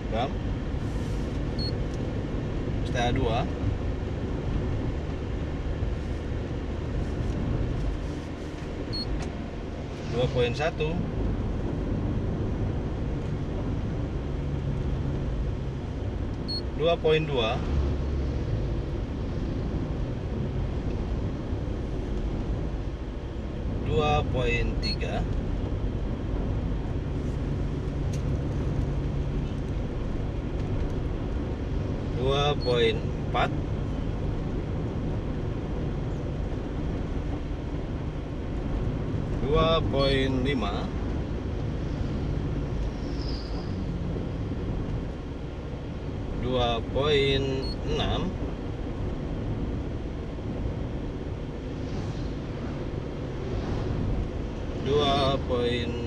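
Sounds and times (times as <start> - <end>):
car road noise rumble: 0.0 - 56.0
high beep: 24.8 - 25.0.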